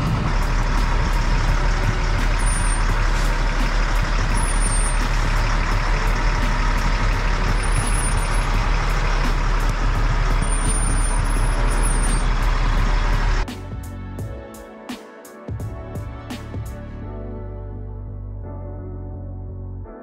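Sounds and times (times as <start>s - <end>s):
flat tire rolling: 0.0s - 13.4s
truck diesel engine running: 0.0s - 13.9s.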